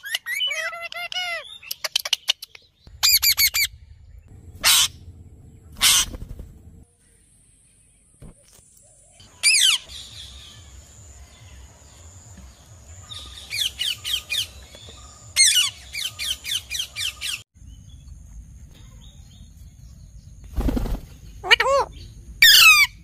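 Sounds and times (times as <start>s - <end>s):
parakeets screeching: 0.0s - 1.7s, 2.9s - 3.8s, 4.5s - 6.6s, 21.4s - 23.0s.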